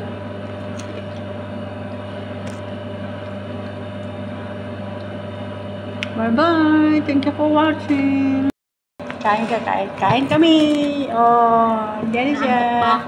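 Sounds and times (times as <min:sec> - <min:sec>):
household appliance humming: 0:00.0 - 0:13.0.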